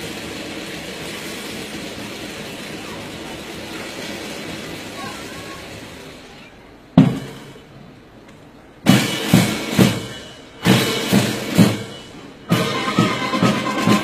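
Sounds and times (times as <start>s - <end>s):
military band drums beating: 0.0s - 14.0s.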